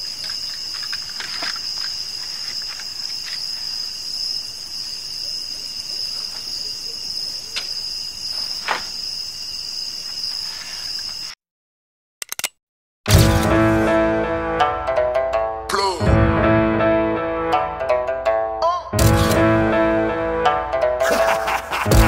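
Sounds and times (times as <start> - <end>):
crickets chirring: 0.0 - 11.4.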